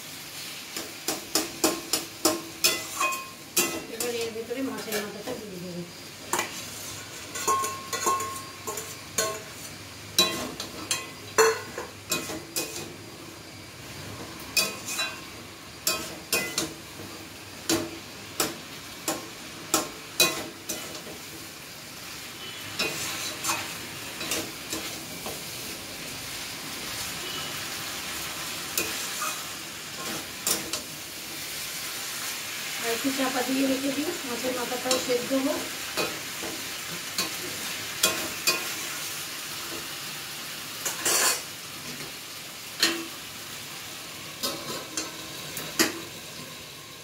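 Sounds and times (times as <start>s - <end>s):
food sizzling in oil: 0.0s - 47.0s
metal spatula scraping a pan: 0.4s - 5.3s, 6.3s - 13.0s, 14.6s - 16.7s, 22.4s - 25.5s, 28.7s - 30.9s, 40.8s - 42.1s.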